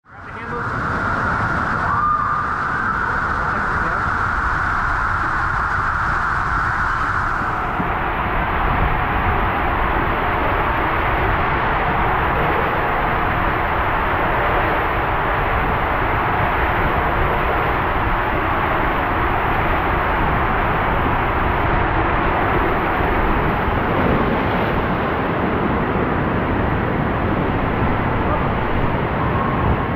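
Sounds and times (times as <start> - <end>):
water slide rushing water: 0.2 - 29.9.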